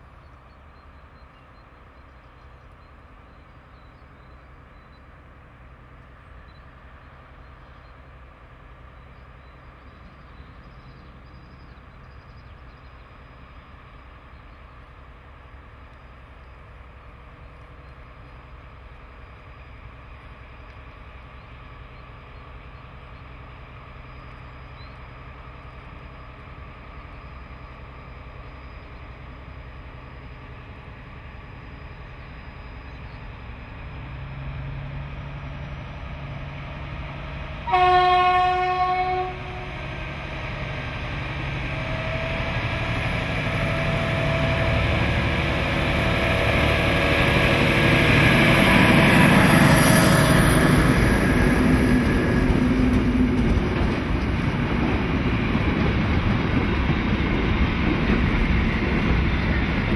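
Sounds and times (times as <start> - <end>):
locomotive engines rumbling: 0.0 - 59.9
locomotive horn blast: 37.6 - 39.8.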